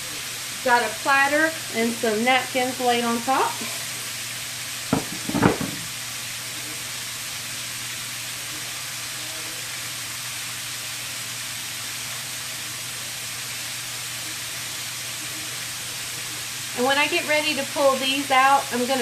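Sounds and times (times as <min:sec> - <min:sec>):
food sizzling in hot oil: 0:00.0 - 0:19.0
brief knocks: 0:04.9 - 0:05.9.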